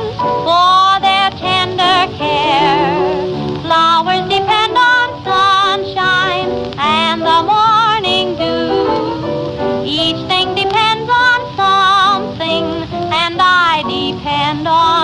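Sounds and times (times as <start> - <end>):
singer with wide vibrato: 0.0 - 9.3
band accompaniment: 1.1 - 3.8.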